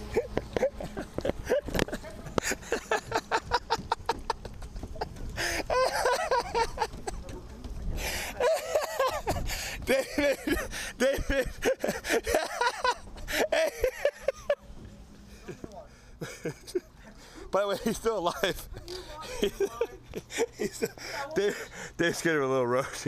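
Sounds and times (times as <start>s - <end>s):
person laughing hard: 0.0s - 7.3s, 8.3s - 14.6s.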